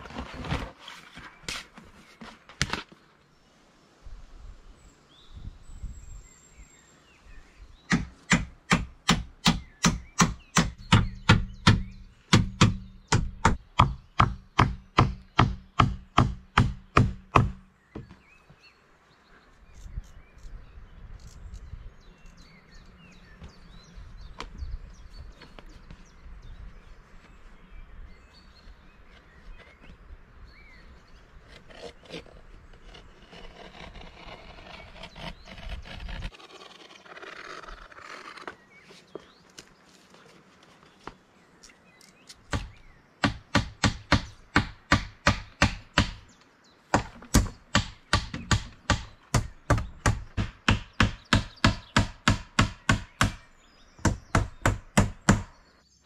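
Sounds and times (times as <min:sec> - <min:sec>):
hammer driving nails: 0:07.9 - 0:18.1.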